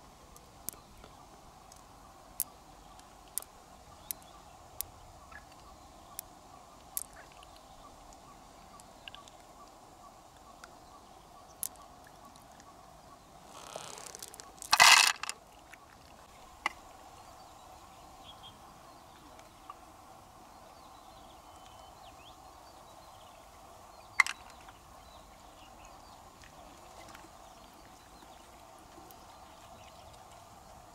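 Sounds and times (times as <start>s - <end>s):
faint outdoor background: 0.0s - 30.9s
shells rustling: 13.5s - 15.4s
shells clattering: 13.9s - 15.4s
shells clicking: 13.9s - 15.4s.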